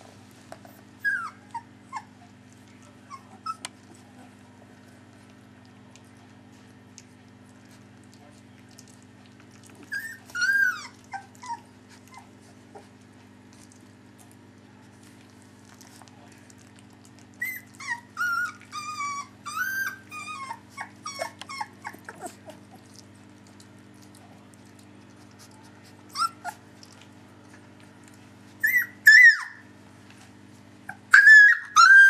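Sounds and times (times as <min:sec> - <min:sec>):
puppies crying: 0:00.6 - 0:02.2, 0:09.8 - 0:13.0, 0:17.3 - 0:23.0, 0:26.0 - 0:26.6, 0:28.6 - 0:29.7, 0:30.9 - 0:32.0.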